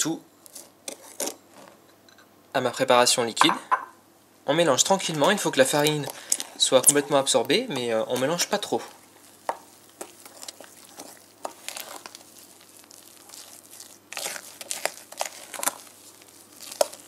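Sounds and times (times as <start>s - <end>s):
spoon knocking against glass bowl: 3.4s - 3.9s
spoon stirring batter in bowl: 4.9s - 17.0s.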